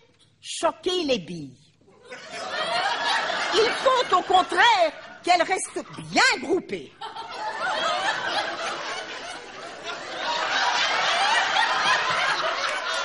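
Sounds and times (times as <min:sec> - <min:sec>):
audience laughing: 0:02.0 - 0:13.0.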